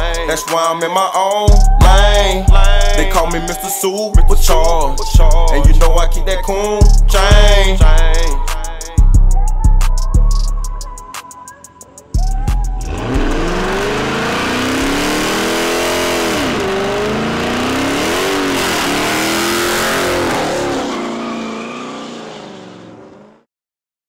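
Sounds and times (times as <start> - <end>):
car engine revving: 12.0 - 23.5
tyres spinning on asphalt: 12.9 - 23.4.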